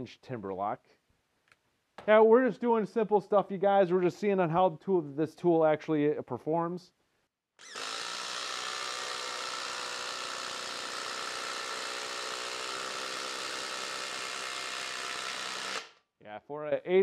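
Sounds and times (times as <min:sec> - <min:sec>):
impact driver driving screw into wood: 0:07.6 - 0:16.0.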